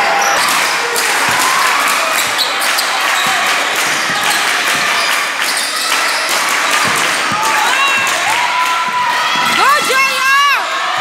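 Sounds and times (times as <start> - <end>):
crowd hubbub: 0.0 - 11.0
shoe squeaks: 2.2 - 7.0.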